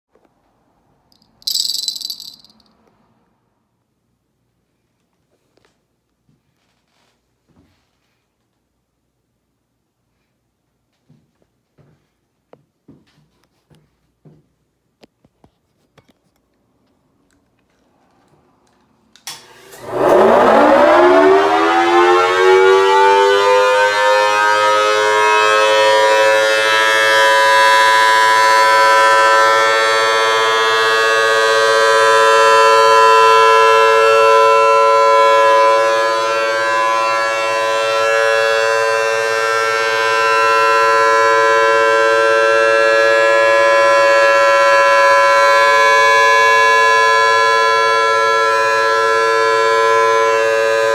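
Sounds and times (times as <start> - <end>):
siren wailing: 19.8 - 50.9.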